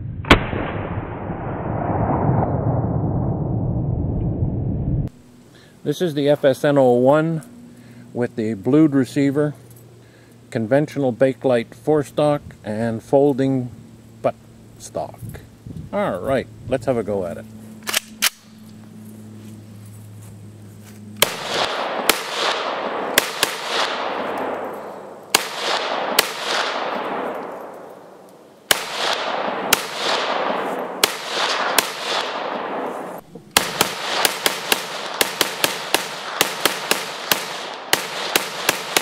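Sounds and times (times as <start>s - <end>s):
rifle shots with echo: 0.3s - 1.2s, 21.2s - 39.0s.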